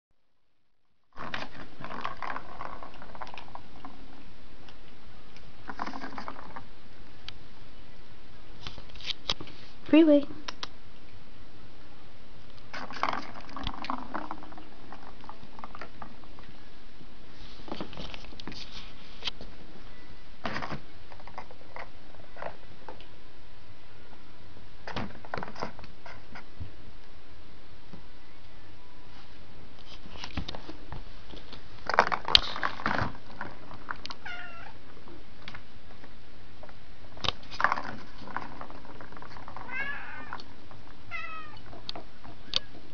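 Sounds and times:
kitten meowing: 34.2 - 34.7, 39.7 - 40.3, 41.1 - 41.6.

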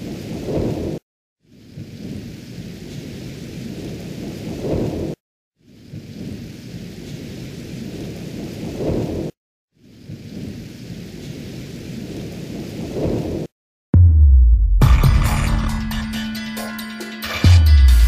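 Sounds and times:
rain: 0.0 - 13.5
loud low boom: 14.0 - 16.2.

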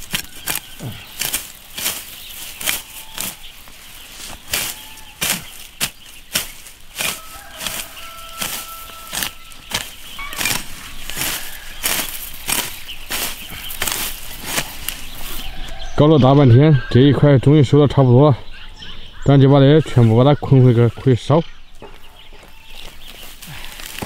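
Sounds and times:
dry stems rustling and snapping: 0.0 - 15.5, 22.8 - 24.0
sickle slashing dry weeds: 0.0 - 15.5.

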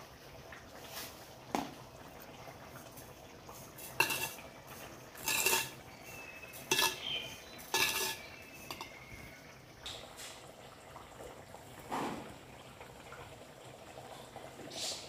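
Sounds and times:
metal spoon clinking in pot: 3.8 - 9.2.

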